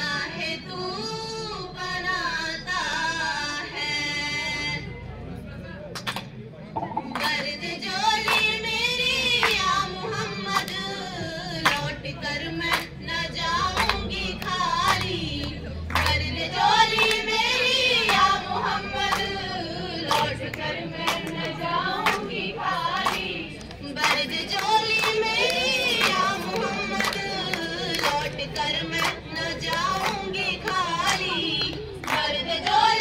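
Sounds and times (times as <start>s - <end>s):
girls singing together: 0.0s - 4.8s, 6.9s - 33.0s
hand claps: 5.9s - 7.6s, 8.2s - 8.6s, 9.4s - 9.8s, 10.4s - 10.8s, 11.6s - 11.9s, 12.6s - 13.0s, 13.7s - 16.2s, 18.0s - 19.3s, 20.0s - 32.8s.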